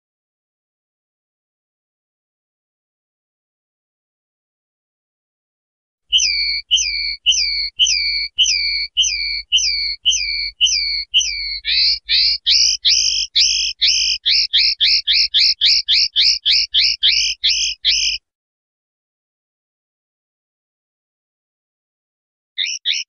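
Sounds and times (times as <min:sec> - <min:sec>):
linnet singing whistled notes: 0:06.1 - 0:18.2, 0:22.6 - 0:23.0.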